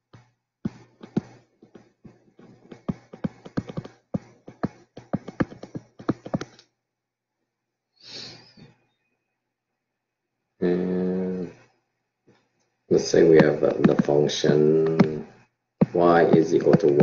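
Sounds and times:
stylus tapping on tablet screen: 0.1 - 6.6, 13.2 - 17.0
short breath: 8.0 - 8.7.

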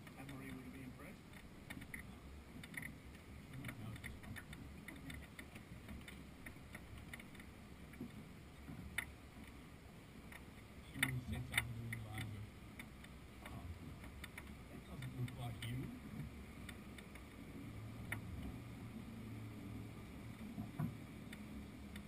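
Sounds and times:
small clicks of yacht fittings: 0.0 - 9.6, 10.2 - 18.6, 20.2 - 22.0.

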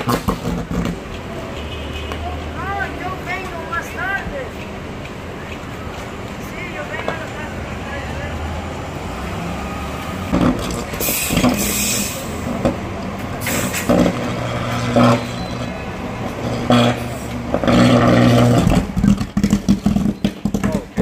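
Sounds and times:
bus diesel engine running: 2.2 - 21.0
air hissing: 11.0 - 12.5, 13.4 - 13.9.

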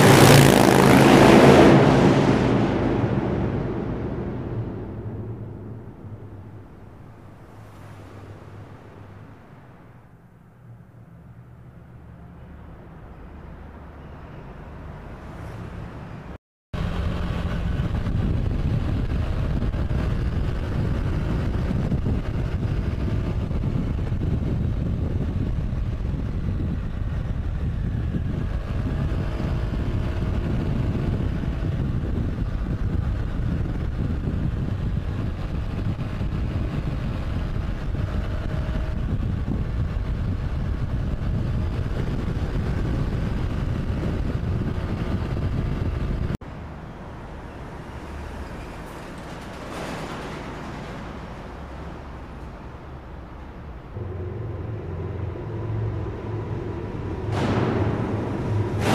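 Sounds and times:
motorcycle engine: 0.0 - 6.9, 54.0 - 58.9
wind rush on microphone: 0.0 - 9.9, 16.8 - 46.4, 47.2 - 58.9
road noise: 0.0 - 58.9.

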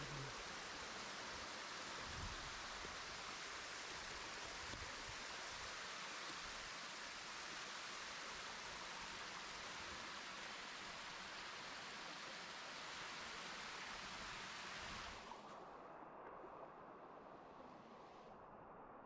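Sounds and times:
small waterfall rushing: 0.0 - 15.5.

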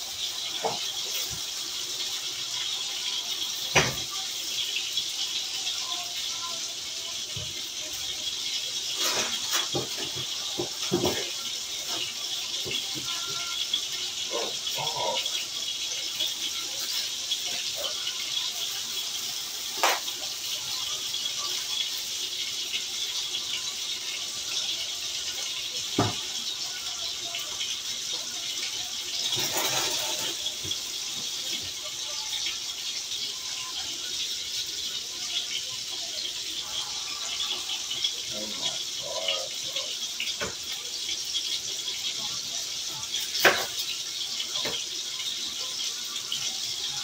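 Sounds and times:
food sizzling in a skillet: 0.0 - 47.0.

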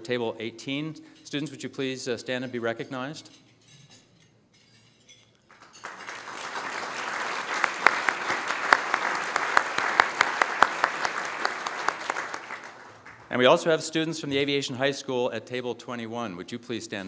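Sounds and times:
audience applauding: 5.5 - 13.6.

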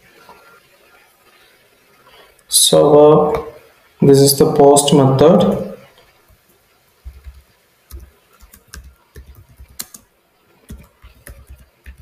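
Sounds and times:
computer keyboard typing: 7.0 - 12.0.

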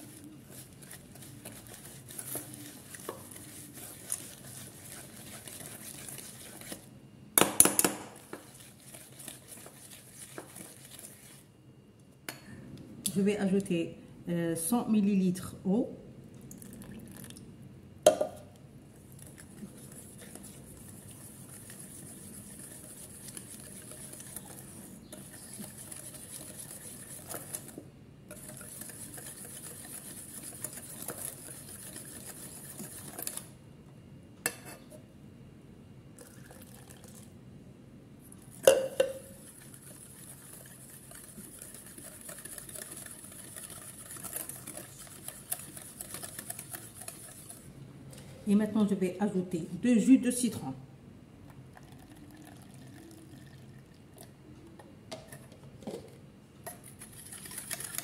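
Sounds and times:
whisk scraping metal pan: 0.0 - 6.8, 8.3 - 11.5, 19.6 - 33.5, 39.4 - 47.6.

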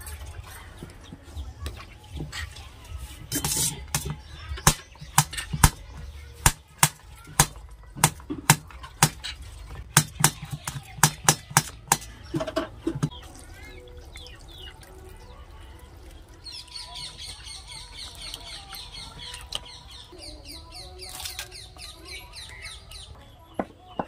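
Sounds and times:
knife scrape: 3.2 - 4.0.

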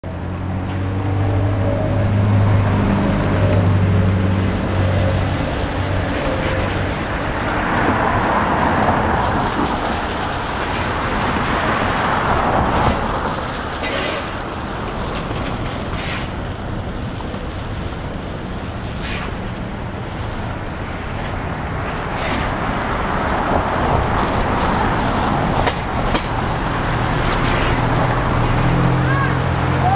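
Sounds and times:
vehicle passing: 0.1 - 15.1, 17.5 - 29.9.

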